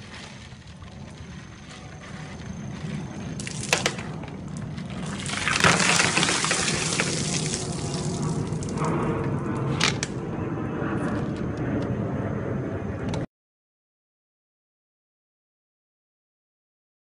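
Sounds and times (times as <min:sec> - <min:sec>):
water gushing and splashing: 0:04.9 - 0:08.9.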